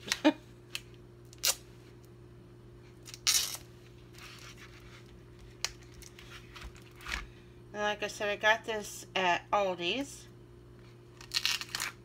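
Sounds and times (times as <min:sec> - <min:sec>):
faint steady hum: 0:00.0 - 0:12.0
plastic packaging crinkling and tearing: 0:03.0 - 0:03.7, 0:11.1 - 0:12.0.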